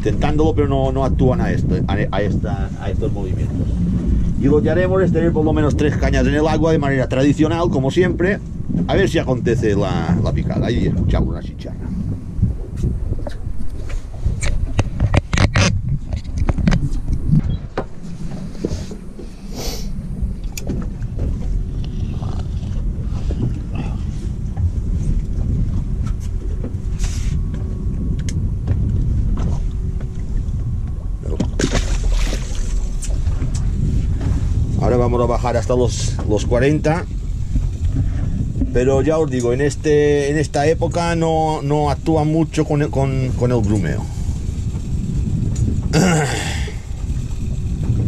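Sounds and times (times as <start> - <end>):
wind and water rumble: 0.0 - 48.0
object splashing into water: 31.3 - 33.1.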